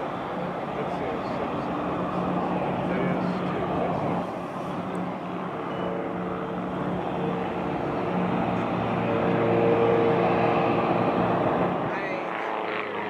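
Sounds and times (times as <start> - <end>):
aircraft engines droning: 0.0 - 13.0.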